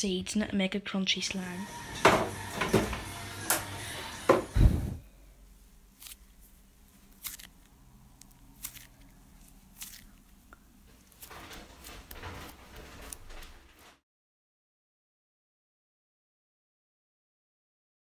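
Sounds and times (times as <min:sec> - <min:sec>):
slime squelching in a fist: 0:05.9 - 0:11.6
sticky slime clicks: 0:07.1 - 0:09.1.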